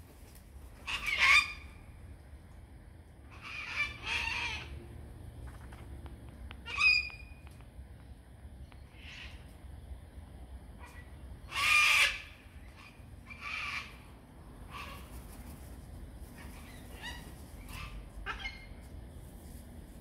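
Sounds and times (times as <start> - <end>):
cockatoo calling harshly: 0.8 - 1.8, 3.3 - 4.8, 6.6 - 7.3, 10.8 - 14.1, 14.7 - 15.2, 16.3 - 18.8.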